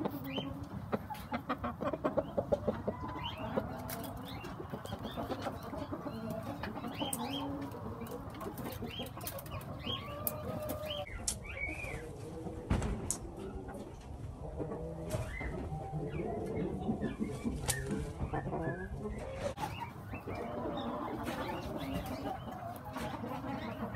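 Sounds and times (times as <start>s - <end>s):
chickens clucking: 0.0s - 23.9s
thump: 12.7s - 13.1s.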